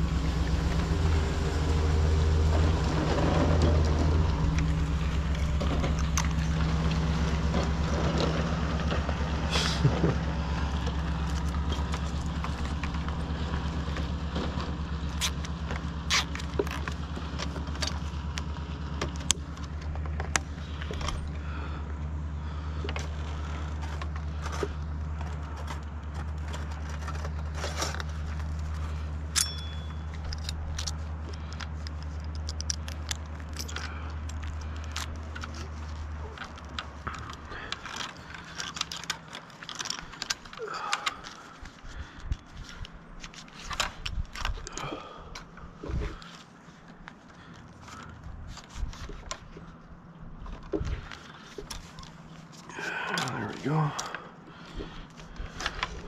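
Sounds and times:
engine idling: 0.0s - 56.0s
metallic clicks and scrapes: 2.1s - 21.3s, 22.8s - 44.8s.

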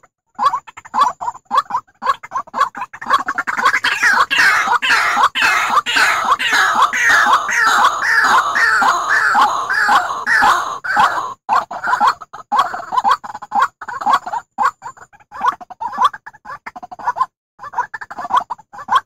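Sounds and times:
waterhen calls sliding down: 3.1s - 12.2s.

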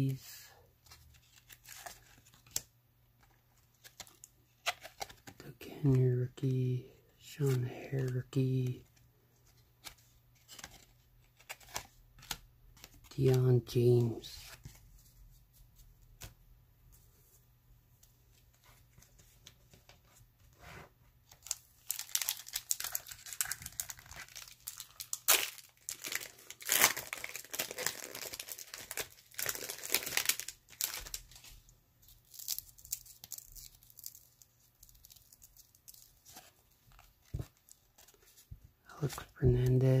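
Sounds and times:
wrapper tearing and crinkling: 21.4s - 31.4s, 32.2s - 38.1s.

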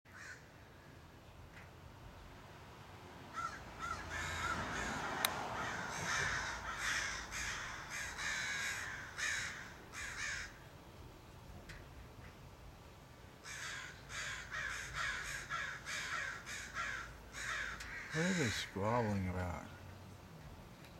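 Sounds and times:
crows cawing: 0.1s - 0.9s, 3.3s - 10.6s, 13.4s - 19.2s.

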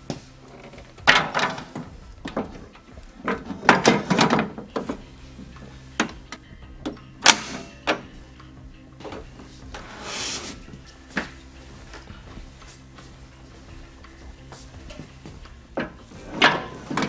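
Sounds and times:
hard case knocks and clunks: 1.0s - 5.0s
panel rubbing against foam: 9.8s - 10.8s.

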